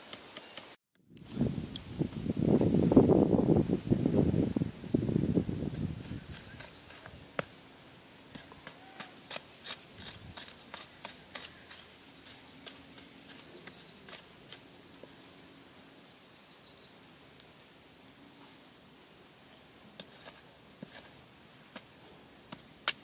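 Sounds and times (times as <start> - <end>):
knife chopping into dry soil: 5.7 - 7.6, 8.3 - 14.6, 20.0 - 23.0.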